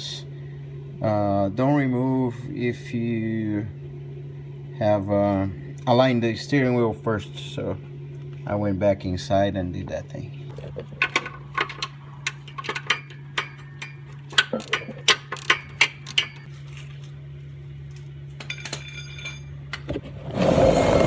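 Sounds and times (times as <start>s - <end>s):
steady low hum: 0.0s - 21.0s
hand tools clinking on steel: 18.4s - 19.8s.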